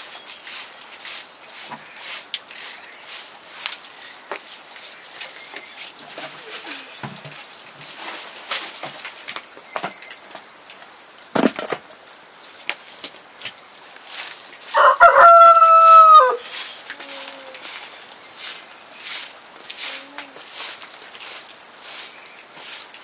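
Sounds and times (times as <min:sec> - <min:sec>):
faint knocks and rustles: 0:03.6 - 0:10.5
rooster crowing: 0:14.7 - 0:16.4.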